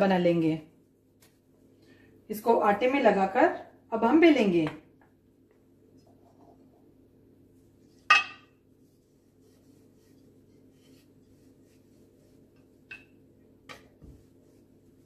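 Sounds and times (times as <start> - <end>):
faint steady hum: 0.0 - 15.0
metal kitchenware clinking: 8.1 - 8.5.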